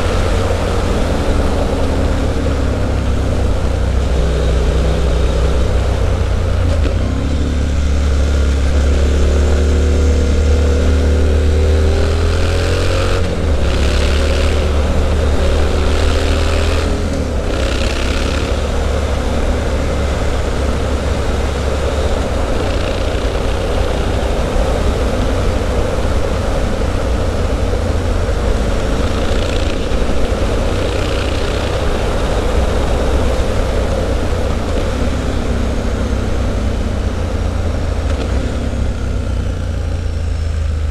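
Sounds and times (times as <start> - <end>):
motorcycle engine running: 0.0 - 40.9
wind and road noise: 0.0 - 40.9.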